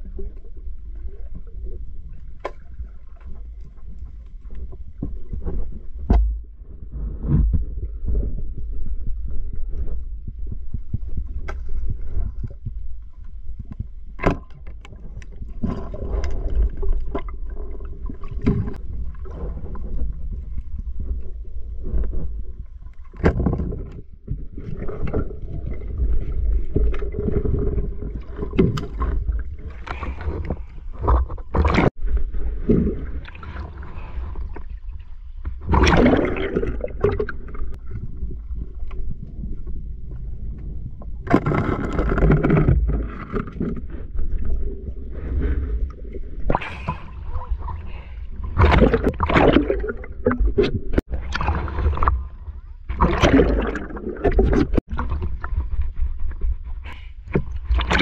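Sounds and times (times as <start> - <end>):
low underwater rumble: 0.0 - 58.0
scrapes and knocks underwater: 0.0 - 58.0
churning water: 23.0 - 38.8, 41.1 - 58.0.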